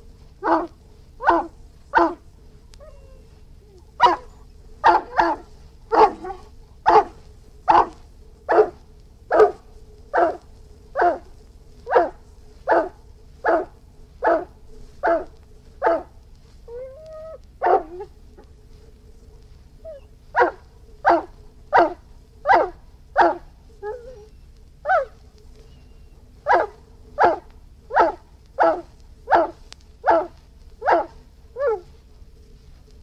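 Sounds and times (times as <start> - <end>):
dog barking: 0.4 - 2.2, 2.8 - 16.2, 17.0 - 18.1, 19.9 - 31.9
dog whining: 0.4 - 2.2, 2.8 - 9.6, 16.7 - 18.5, 19.8 - 32.0.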